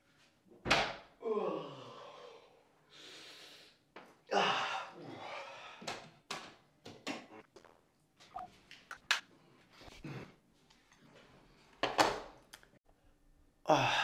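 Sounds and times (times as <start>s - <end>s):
breathy falling vocal sound: 1.2s - 2.6s.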